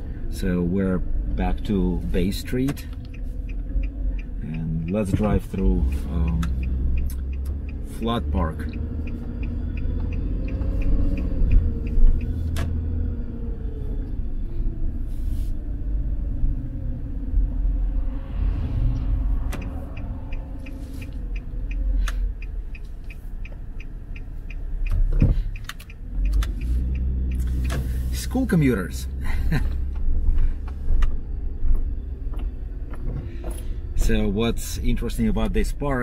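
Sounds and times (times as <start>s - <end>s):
car road and engine rumble: 0.0s - 36.0s
faint regular ticking: 1.3s - 12.4s, 19.5s - 28.8s
oncoming vehicle swishing past: 17.4s - 21.3s.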